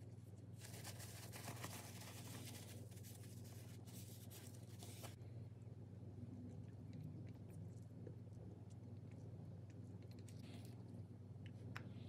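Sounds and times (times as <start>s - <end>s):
paper towel wiping grease: 0.6s - 5.2s.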